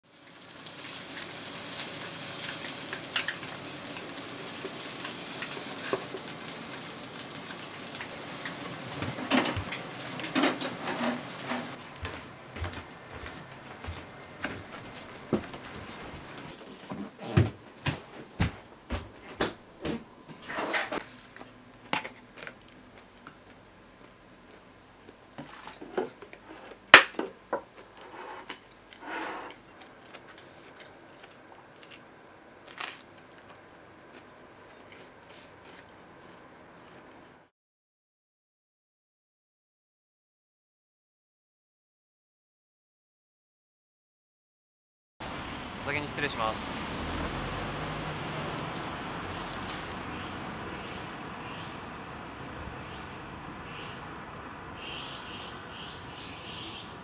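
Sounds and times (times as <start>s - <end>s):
stir-fry sizzling in a pan: 0.0s - 12.3s, 45.2s - 57.0s
dishes and utensils clinking: 10.2s - 11.8s.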